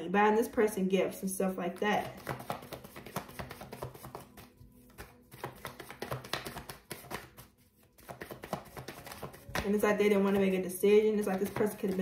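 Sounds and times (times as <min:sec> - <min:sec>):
faint background music: 0:00.0 - 0:12.0
tarot cards clicking on a desk: 0:02.0 - 0:10.5, 0:11.2 - 0:12.0.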